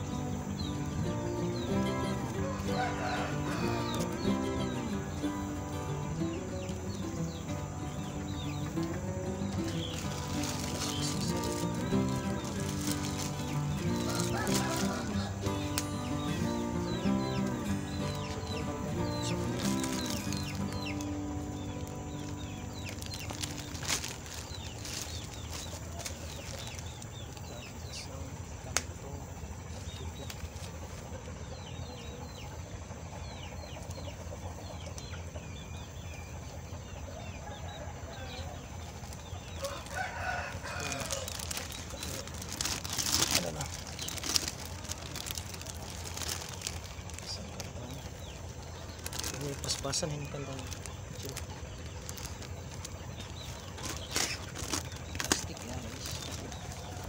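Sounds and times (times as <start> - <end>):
chickens clucking: 0.0 - 57.0
plastic sheet crinkling: 9.5 - 16.0, 18.0 - 27.2, 39.0 - 57.0.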